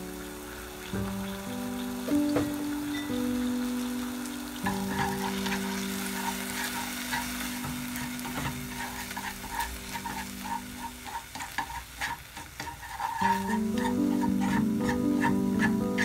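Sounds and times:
eggs sizzling in a pan: 0.0 - 16.0
wooden utensil scraping a pan: 4.6 - 16.0.

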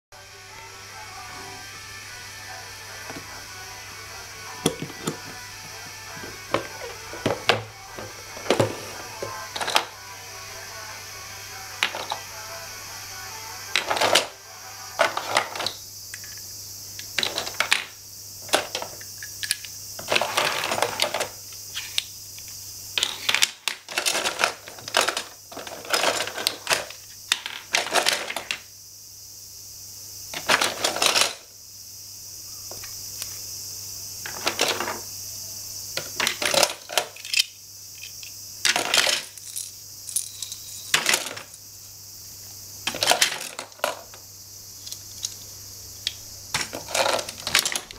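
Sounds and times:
toy tools clicking and clattering: 6.1 - 9.9, 11.8 - 12.3, 13.7 - 14.4, 15.0 - 22.1, 23.0 - 28.6, 30.4 - 31.5, 34.3 - 35.0, 36.0 - 41.6, 42.9 - 44.2, 44.8 - 47.9.

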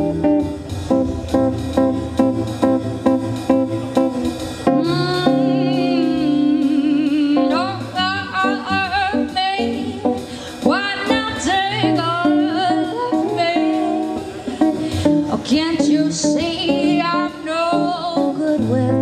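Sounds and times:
plucked guitar: 0.0 - 19.0
woman singing with vibrato: 4.6 - 19.0.

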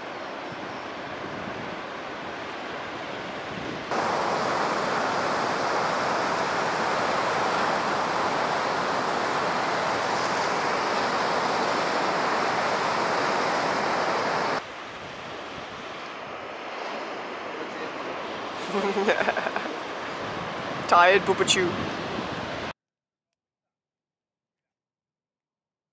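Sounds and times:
ocean surf breaking: 3.8 - 22.7.

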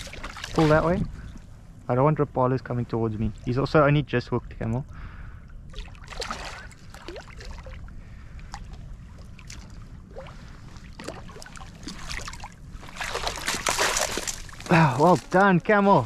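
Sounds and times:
fish splashing at surface: 9.5 - 14.6.

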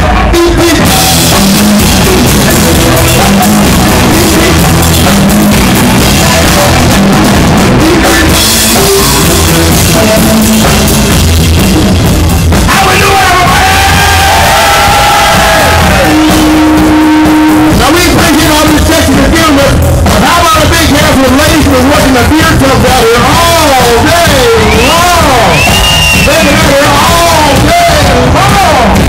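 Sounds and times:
drum kit with crashing cymbals: 0.0 - 29.0
electric guitar: 13.3 - 29.0.

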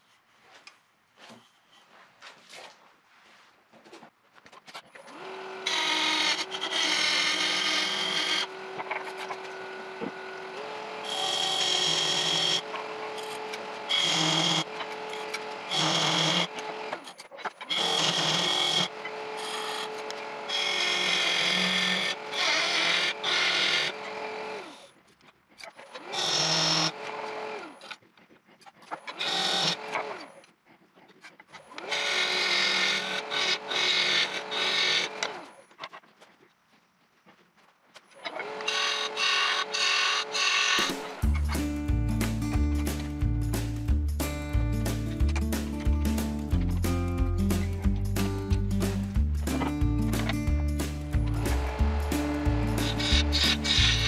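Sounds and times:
turning tool scraping wood: 4.5 - 36.5, 38.1 - 41.7, 49.4 - 54.0
wood lathe motor hum: 5.0 - 24.9, 25.9 - 28.0, 29.1 - 30.3, 31.6 - 35.5, 38.2 - 41.3, 51.2 - 54.0.

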